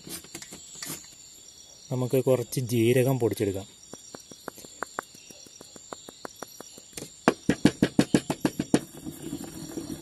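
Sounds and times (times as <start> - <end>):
pestle pounding in mortar: 7.2 - 9.1
pestle grinding scrape: 8.2 - 10.0.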